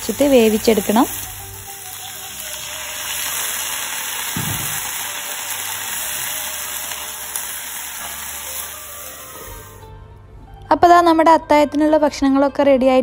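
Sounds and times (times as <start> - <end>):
beans sizzling in oil: 0.0 - 9.8.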